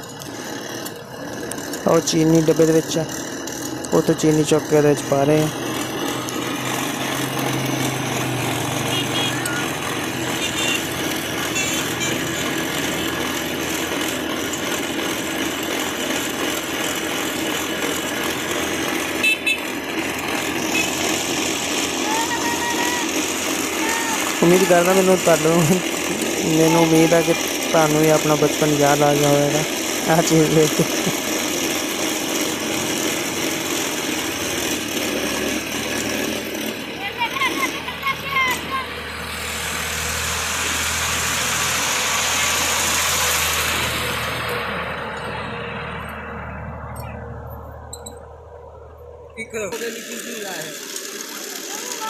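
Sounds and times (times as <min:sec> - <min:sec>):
cotton candy machine humming: 0:00.0 - 0:52.0
street noise: 0:00.0 - 0:52.0
high horn toot: 0:08.8 - 0:09.7, 0:10.3 - 0:12.3, 0:19.2 - 0:19.8.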